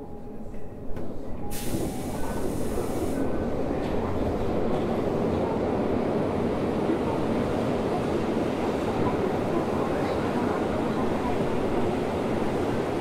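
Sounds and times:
subway train running in tunnel: 0:00.0 - 0:13.0
burst of hiss: 0:01.5 - 0:03.2.

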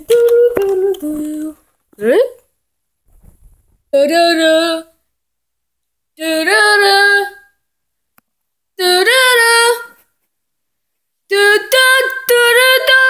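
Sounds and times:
high-pitched voice singing: 0:00.0 - 0:01.6, 0:11.3 - 0:13.0.

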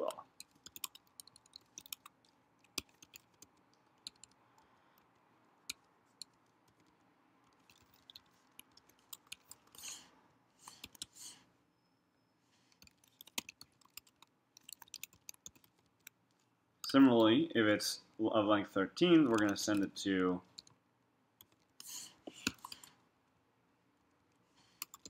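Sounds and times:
typing on computer keyboard: 0:00.2 - 0:09.8, 0:10.7 - 0:11.1, 0:12.7 - 0:16.2, 0:19.3 - 0:20.8, 0:21.4 - 0:21.8, 0:24.8 - 0:25.0.

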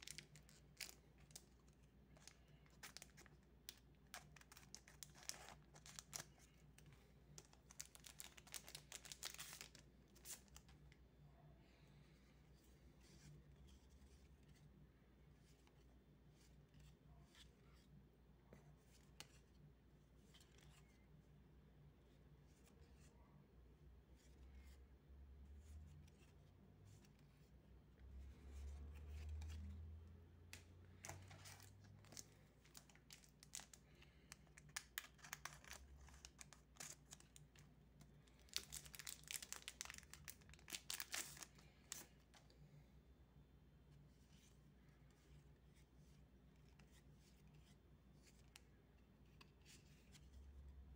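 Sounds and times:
foil wrapper crinkling: 0:38.4 - 0:42.0.

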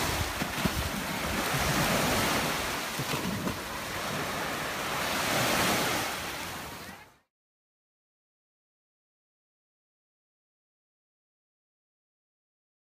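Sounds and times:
small waves washing onto shore: 0:00.0 - 0:07.2.

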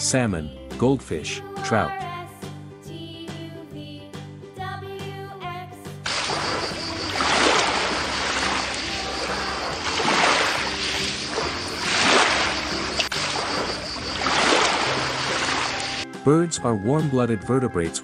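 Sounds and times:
soft background music: 0:00.0 - 0:18.0
ocean waves washing in: 0:06.1 - 0:16.0.

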